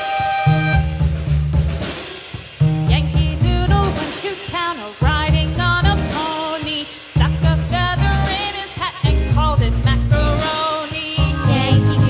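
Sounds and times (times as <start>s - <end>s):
upbeat pop song with singing: 2.9s - 12.0s.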